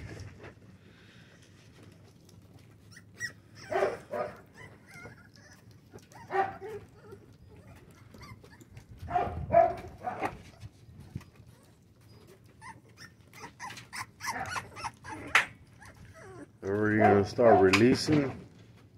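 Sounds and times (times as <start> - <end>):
puppies barking: 2.9 - 10.5, 12.4 - 18.0.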